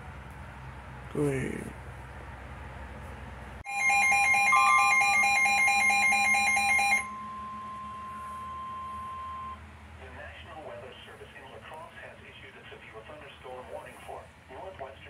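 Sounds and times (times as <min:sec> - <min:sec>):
steady alarm tone: 0:03.6 - 0:09.6
rapid alarm beeping: 0:03.7 - 0:09.6.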